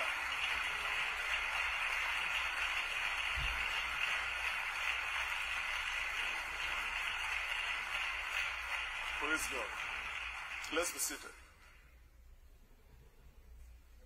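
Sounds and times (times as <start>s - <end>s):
congregation applauding: 0.0s - 11.9s.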